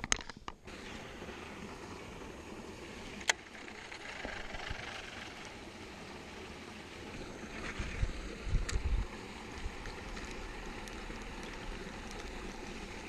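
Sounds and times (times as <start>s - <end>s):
creek spilling over rocks: 6.4s - 13.0s.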